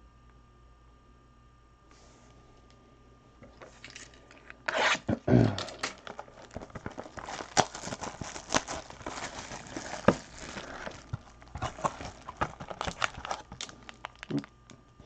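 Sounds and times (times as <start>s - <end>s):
plastic shrink wrap crinkling: 5.6s - 15.0s
cardboard box being opened: 6.0s - 14.3s.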